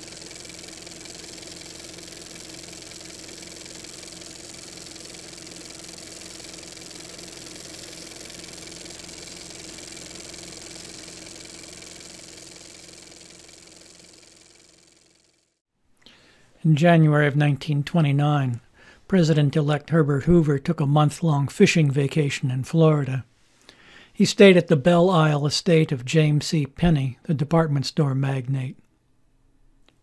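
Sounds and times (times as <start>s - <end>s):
film projector running: 0.0s - 15.6s.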